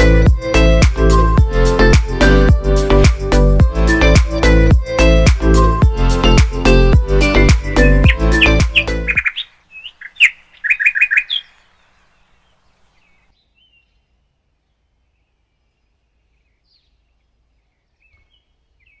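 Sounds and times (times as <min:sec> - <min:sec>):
songbird chirping: 0:06.2 - 0:19.0.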